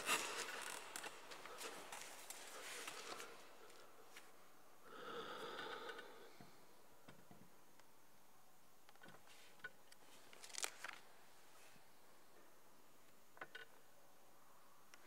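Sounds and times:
person breathing: 0:04.8 - 0:06.8.

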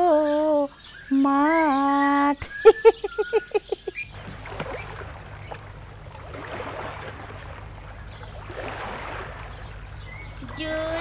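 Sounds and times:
lapping river water: 0:00.0 - 0:11.0
steady low hum: 0:03.9 - 0:11.0.

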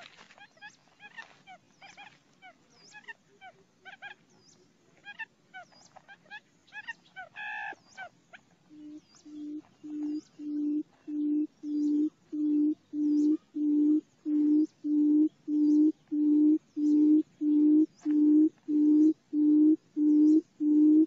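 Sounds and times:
low bird hooting: 0:08.7 - 0:21.0.

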